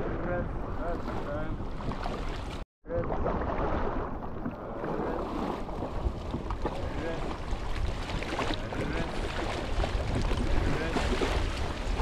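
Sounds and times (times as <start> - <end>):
wind buffeting microphone: 5.2 - 12.0.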